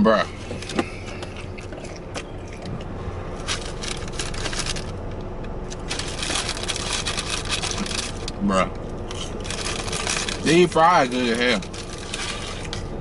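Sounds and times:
paper wrapper crinkling: 3.4s - 5.0s, 5.7s - 8.3s, 9.1s - 12.9s.

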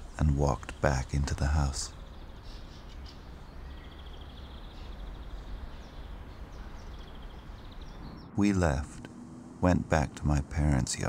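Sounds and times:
steady hiss and low rumble: 0.0s - 11.0s
high pulsing chirp: 1.9s - 10.2s.

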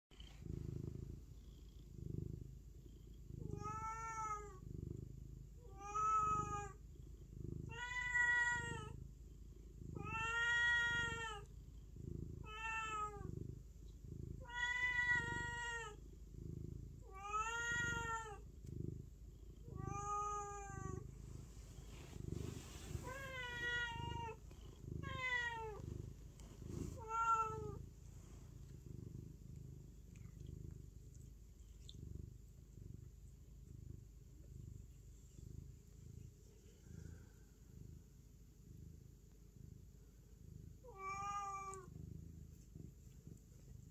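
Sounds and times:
cat purring: 0.1s - 43.9s
cat meowing: 7.7s - 8.9s, 10.0s - 11.4s, 14.4s - 16.0s, 25.0s - 25.8s, 27.0s - 27.8s, 40.9s - 41.9s.

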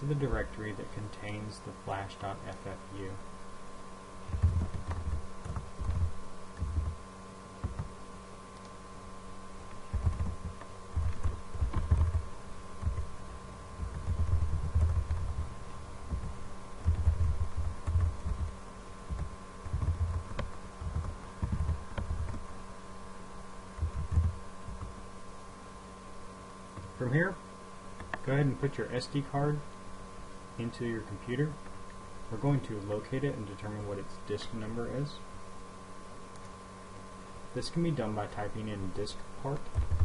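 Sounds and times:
electrical hum: 0.0s - 40.0s
keyboard typing thumps: 4.3s - 7.0s, 7.6s - 7.9s, 9.9s - 13.1s, 13.8s - 15.5s, 16.1s - 22.4s, 23.8s - 24.9s, 39.7s - 40.0s.

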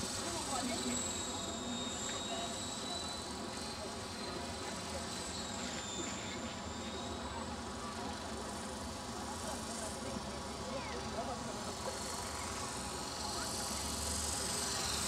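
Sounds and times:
rc helicopter motor whine: 0.0s - 10.0s, 10.6s - 15.0s.

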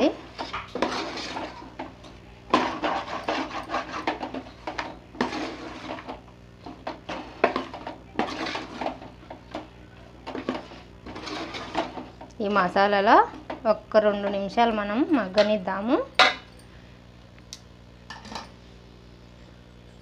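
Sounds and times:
metal spoon scraping metal pot: 0.4s - 1.6s, 2.6s - 4.4s, 7.1s - 9.0s, 10.4s - 12.0s.

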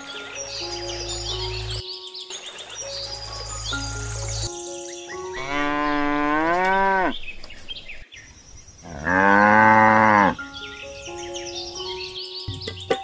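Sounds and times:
cow mooing: 5.4s - 7.2s, 8.9s - 10.4s.

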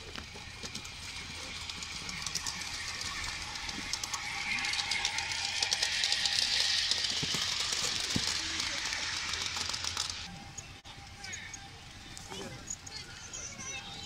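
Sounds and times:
model train wheels clicking: 0.0s - 14.0s
train hiss: 0.8s - 10.3s.

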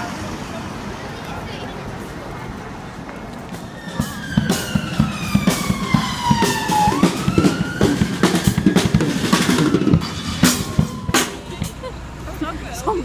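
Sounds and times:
siren wailing: 3.6s - 11.6s
drum kit playing a steady beat: 3.6s - 12.1s.

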